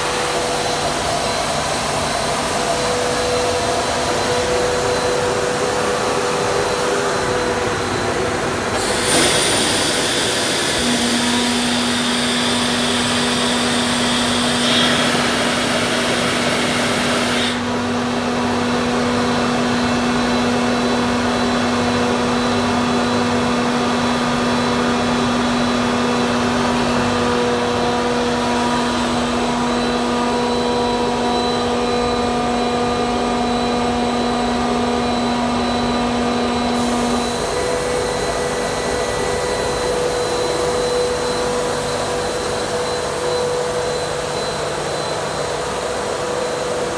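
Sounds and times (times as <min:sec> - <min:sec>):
air compressor drone: 0:00.0 - 0:46.9
loud air hiss: 0:08.6 - 0:17.7, 0:36.8 - 0:40.8.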